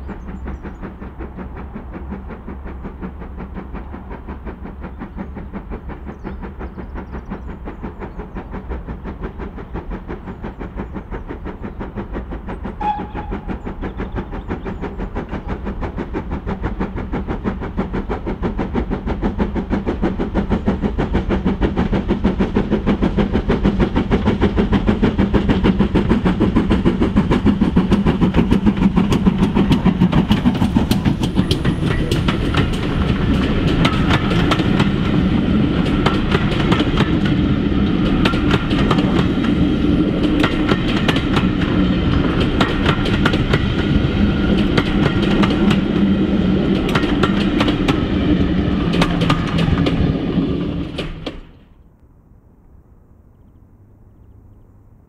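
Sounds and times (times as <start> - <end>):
steam locomotive exhaust beats: 0.0 - 52.0
coaches clattering over rail joints: 23.6 - 51.6.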